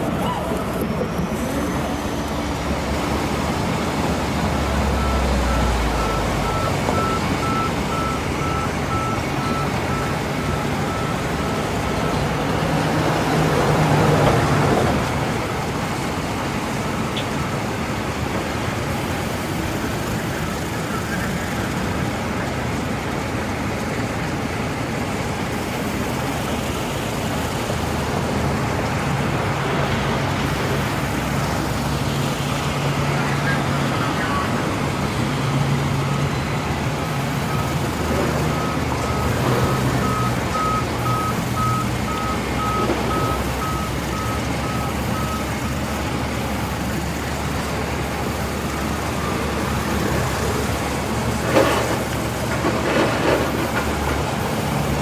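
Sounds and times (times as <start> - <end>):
band sawmill cutting log: 0.0 - 5.9.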